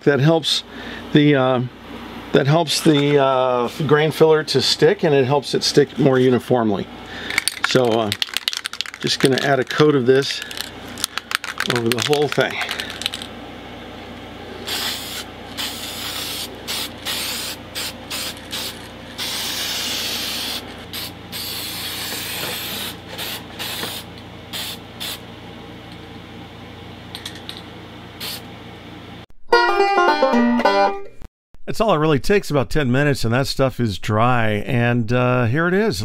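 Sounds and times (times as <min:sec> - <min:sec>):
spray hissing bursts: 0:14.6 - 0:25.2, 0:28.2 - 0:28.5
plucked banjo music: 0:29.5 - 0:31.2.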